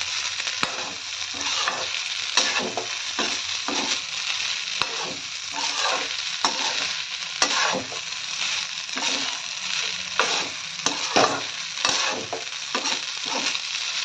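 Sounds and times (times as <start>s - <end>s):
rice sizzling in a wok: 0.0s - 14.0s
spatula scraping wok: 0.0s - 14.0s
spatula knocking pan: 10.2s - 13.5s.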